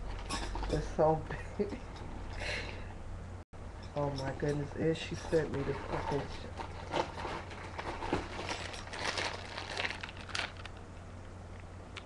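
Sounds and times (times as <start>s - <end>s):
plastic bag crinkling: 5.2s - 10.9s.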